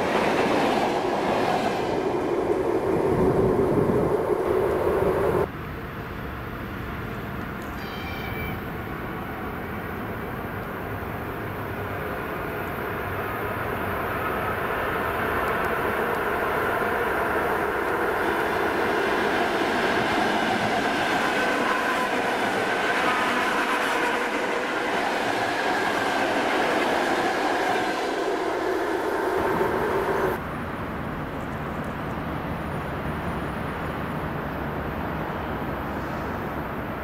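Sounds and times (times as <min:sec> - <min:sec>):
train passing on rails: 0:00.0 - 0:37.0
wavering high rail tones: 0:07.6 - 0:37.0.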